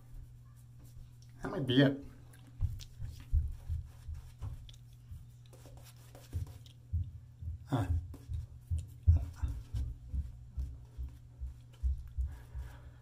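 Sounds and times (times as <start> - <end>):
steady low hum: 0.0 - 13.0
fingertips rubbing skin: 2.6 - 6.9.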